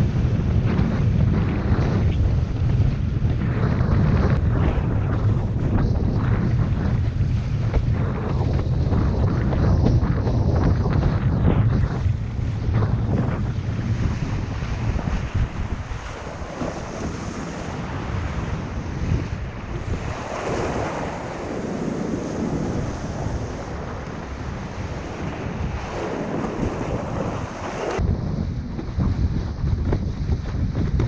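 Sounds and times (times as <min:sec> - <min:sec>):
wind buffeting microphone: 0:00.0 - 0:31.0
hiss of breaking surf: 0:26.6 - 0:28.0.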